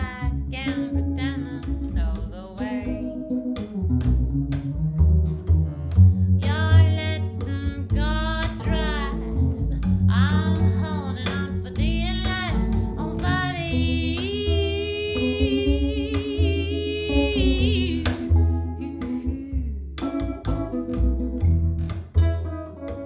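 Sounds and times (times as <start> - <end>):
woman singing: 0.0 - 3.2, 6.4 - 20.4
upright double bass: 0.0 - 23.0.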